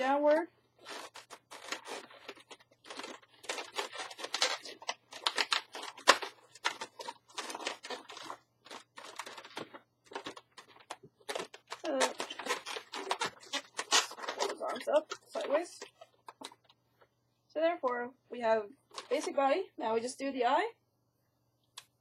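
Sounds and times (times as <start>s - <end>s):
balloons rubbing and squeaking: 0.0s - 16.2s.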